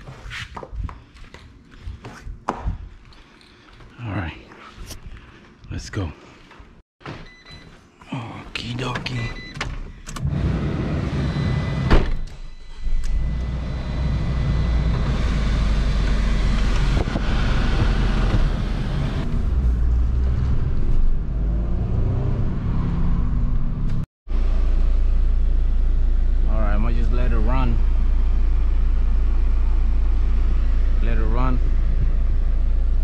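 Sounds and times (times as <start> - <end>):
car engine and road rumble: 8.6 - 33.0.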